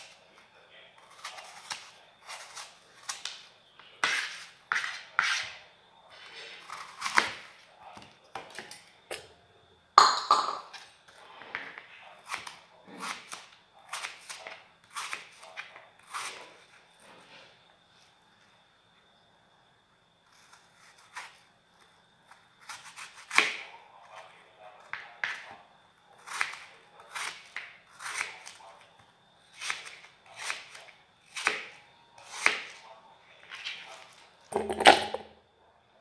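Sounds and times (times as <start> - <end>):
knife crunching through apple: 1.0 - 7.6, 12.3 - 16.6, 26.2 - 28.7, 33.4 - 35.2.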